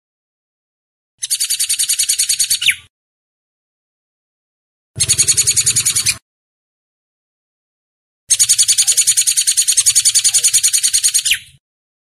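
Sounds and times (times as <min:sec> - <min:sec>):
bird chattering call: 0:05.0 - 0:06.2, 0:08.3 - 0:11.4.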